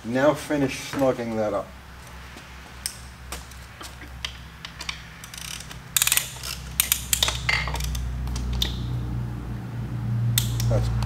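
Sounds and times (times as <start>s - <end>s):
ratchet clicking: 2.8s - 9.0s, 10.4s - 10.8s.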